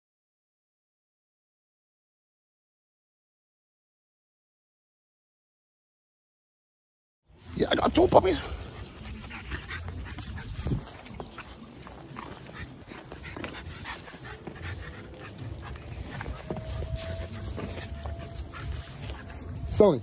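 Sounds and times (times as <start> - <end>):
puppies whimpering: 7.9 - 20.0.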